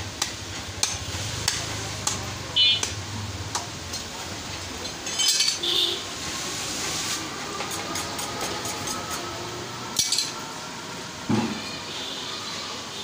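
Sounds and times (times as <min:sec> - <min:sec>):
knife clinking on metal: 0:05.0 - 0:05.6.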